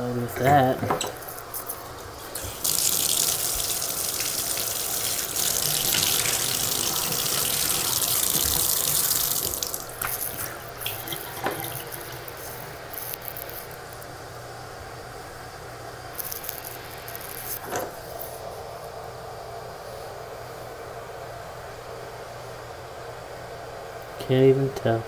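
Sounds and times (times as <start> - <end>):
bathtub faucet running: 1.8 - 13.2
water dripping: 2.3 - 13.3.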